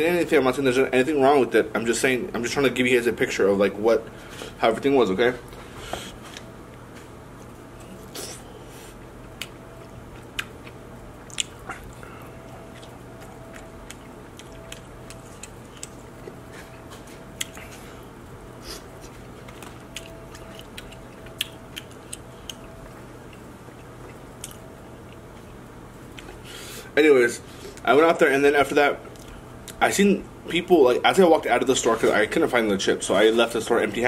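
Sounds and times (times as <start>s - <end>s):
chewing and mouth smacks: 9.0s - 17.8s, 19.1s - 26.4s.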